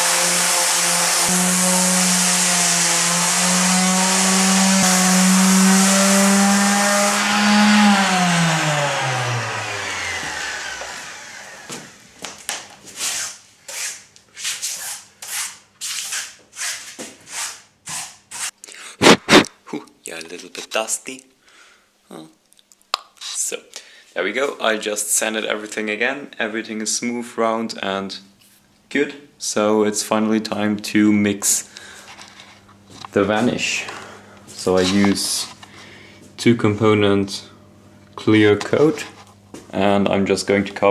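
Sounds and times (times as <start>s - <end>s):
orbital sander running: 0.0s - 12.0s
footsteps and shuffling: 19.0s - 19.5s, 38.9s - 39.8s.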